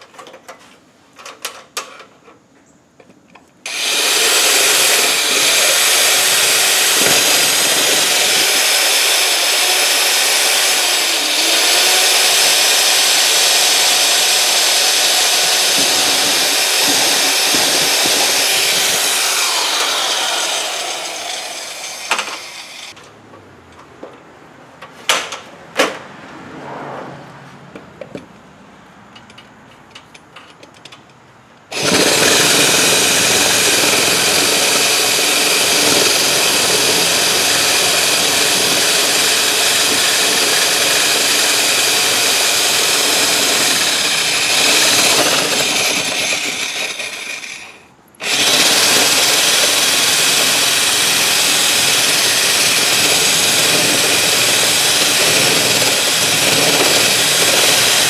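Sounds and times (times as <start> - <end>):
power drill boring through wall: 3.7 - 23.0, 31.7 - 58.0.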